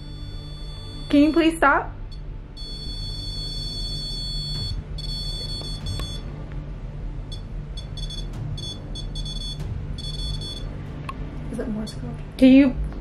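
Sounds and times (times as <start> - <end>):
high-pitched electronic alarm beeps: 0.0 - 6.2, 7.3 - 10.7.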